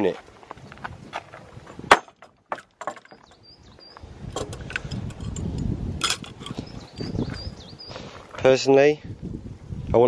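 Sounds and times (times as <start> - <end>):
metal gate latch and chain rattling: 4.4 - 6.6.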